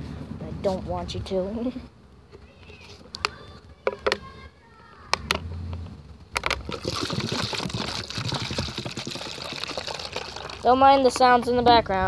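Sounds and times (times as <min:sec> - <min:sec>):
plastic bottles handled: 0:06.4 - 0:11.5
liquid pouring into bottle: 0:06.6 - 0:10.8.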